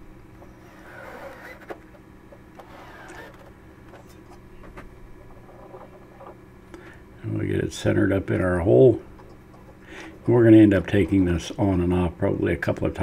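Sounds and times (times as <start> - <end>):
steady low hum: 0.0 - 13.0
cordless drill whirring: 0.4 - 1.8, 2.6 - 3.4.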